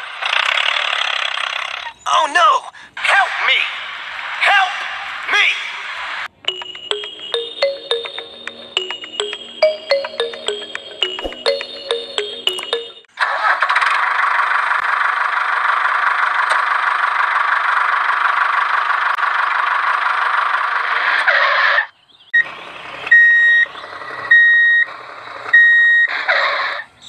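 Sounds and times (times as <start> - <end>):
high beeps: 6.5 - 13.1.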